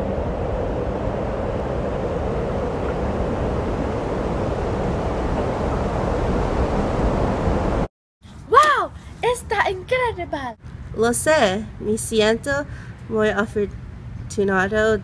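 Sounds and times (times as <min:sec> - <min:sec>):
blizzard wind rushing: 0:00.0 - 0:07.9
deep rumble: 0:00.0 - 0:07.9.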